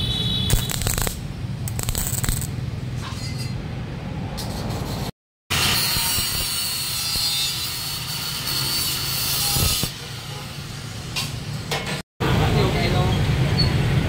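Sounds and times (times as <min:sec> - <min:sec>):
angle grinder grinding steel: 0:05.6 - 0:10.0.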